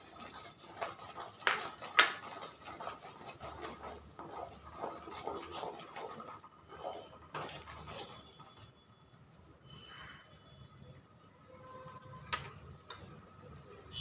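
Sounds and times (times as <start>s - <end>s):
spatula scraping and knocking a pan: 0.0s - 8.7s
syrup bubbling: 0.0s - 14.0s.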